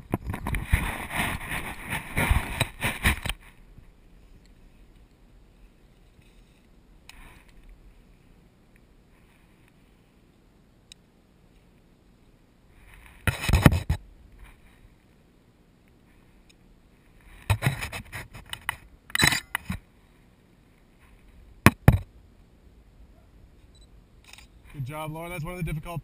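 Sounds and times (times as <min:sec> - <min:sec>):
sharp scrapes and clicks: 0:00.0 - 0:03.6, 0:12.8 - 0:14.7, 0:17.2 - 0:19.8.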